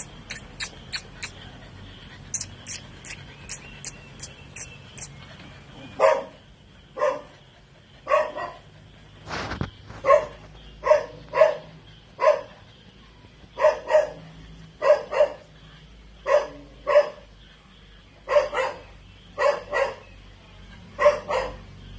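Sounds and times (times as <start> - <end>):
puppy yapping barks: 6.0 - 6.4, 10.0 - 12.5, 13.6 - 14.2, 14.8 - 15.4, 16.2 - 17.2, 18.3 - 18.8, 19.4 - 20.0, 21.0 - 21.6
noisy scrape or rattle: 9.2 - 10.1.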